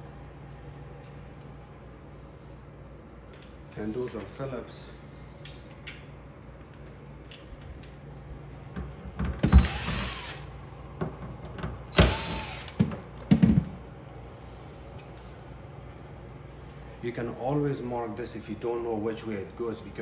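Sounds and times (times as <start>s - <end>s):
impact driver whirring: 9.4s - 10.5s, 11.9s - 13.0s.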